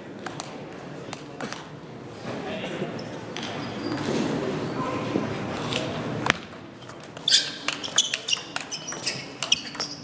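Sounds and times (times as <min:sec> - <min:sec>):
table tennis ball clicking: 0:07.0 - 0:10.0.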